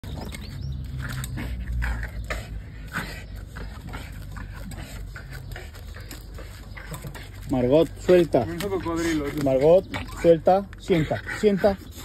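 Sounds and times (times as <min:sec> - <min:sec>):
paws scuffling on dirt: 0:00.0 - 0:12.0
dog scraping and biting: 0:00.1 - 0:12.0.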